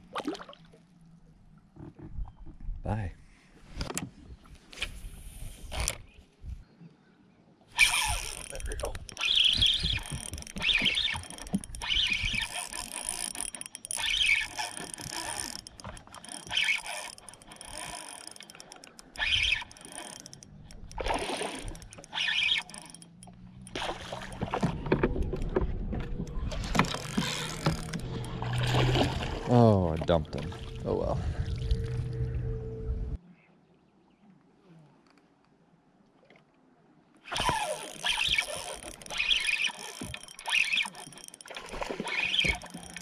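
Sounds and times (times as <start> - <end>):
reel drag giving line: 4.7 - 6.1, 7.7 - 33.0, 37.2 - 43.0
fishing reel being cranked: 5.6 - 6.0, 7.8 - 24.5, 26.2 - 28.7, 37.3 - 43.0
low hum: 8.2 - 33.2.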